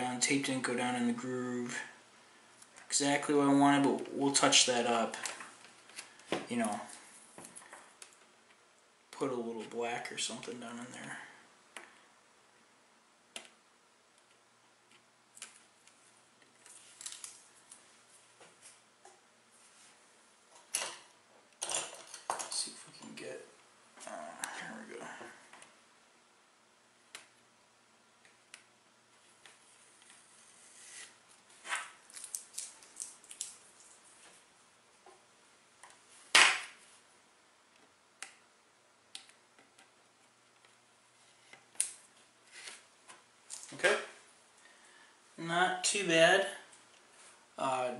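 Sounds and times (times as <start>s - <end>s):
sharp scrape: 30.4s - 31.9s.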